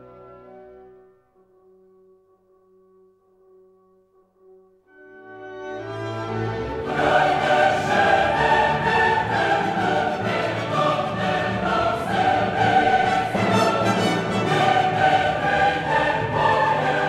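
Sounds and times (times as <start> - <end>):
orchestral music with choir: 0.0 - 1.1, 4.9 - 17.0.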